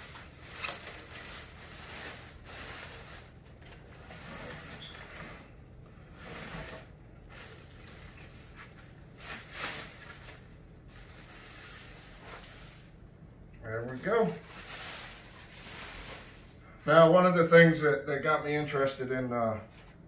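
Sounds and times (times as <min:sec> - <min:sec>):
plastic bag crinkling and rustling: 0:00.0 - 0:13.1, 0:13.8 - 0:16.7.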